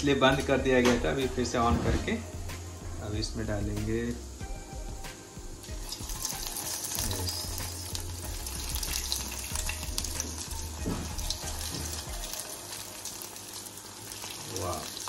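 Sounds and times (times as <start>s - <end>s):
cutlets sizzling in hot oil: 5.5s - 15.0s.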